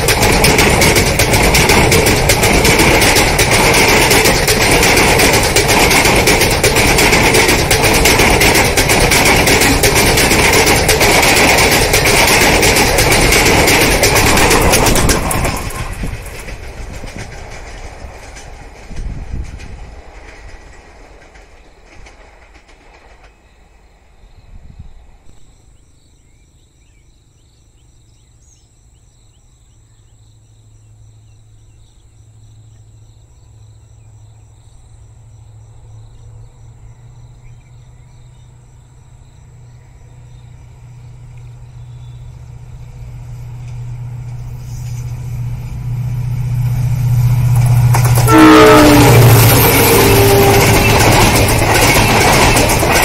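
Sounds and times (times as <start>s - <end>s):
diesel locomotive engine drone: 0.0s - 53.0s
train horn sliding down: 48.1s - 51.3s.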